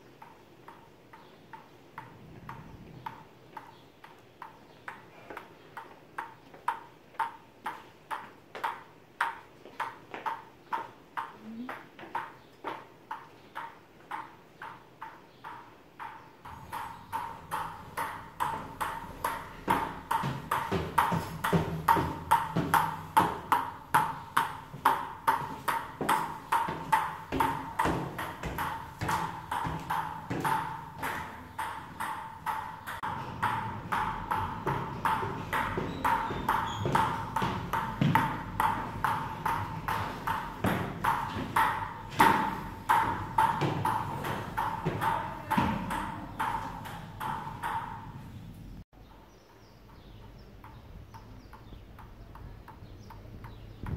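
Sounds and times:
table tennis ball on paddle: 5.8s - 48.2s.

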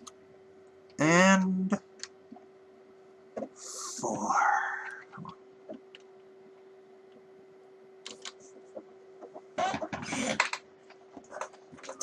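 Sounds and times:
steady low hum: 0.0s - 12.0s
rubbing squeaking and clicks: 8.5s - 12.0s.

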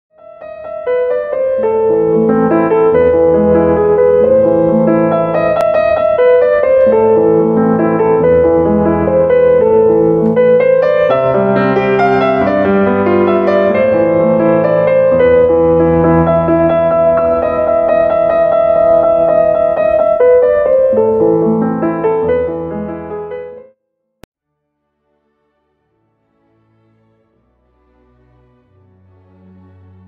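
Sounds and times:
piano music: 0.1s - 23.8s.

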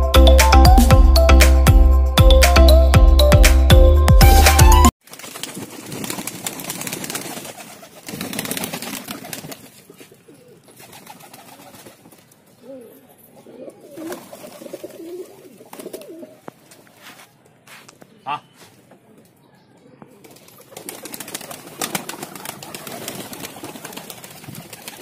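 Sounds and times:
pigeons cooing: 9.9s - 11.7s, 12.6s - 16.5s.

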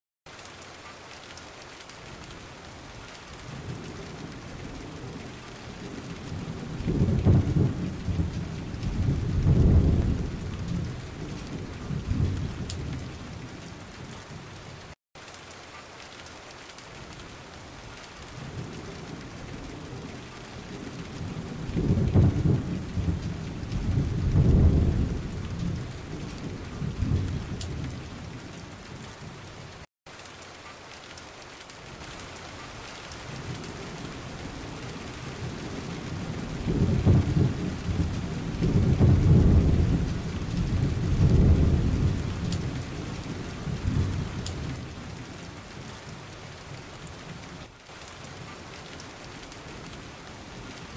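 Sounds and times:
steady rain: 0.3s - 50.9s
rolling thunder: 3.5s - 14.5s, 18.4s - 29.4s, 33.3s - 45.9s.

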